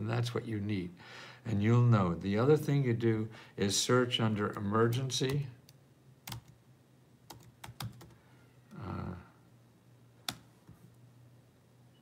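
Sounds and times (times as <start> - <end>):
keyboard keys clicking: 7.3 - 8.1.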